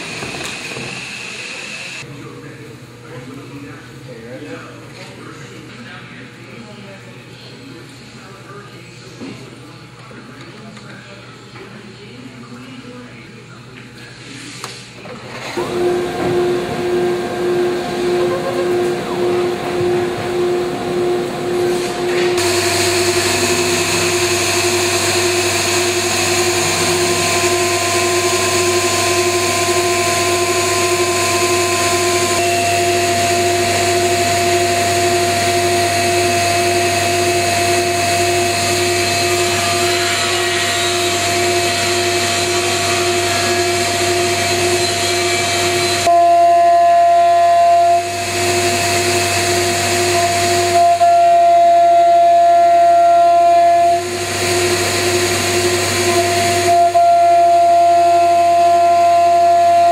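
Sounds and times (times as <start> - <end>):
low machine drone: 15.6 - 59.9
router machine whine: 15.6 - 59.9.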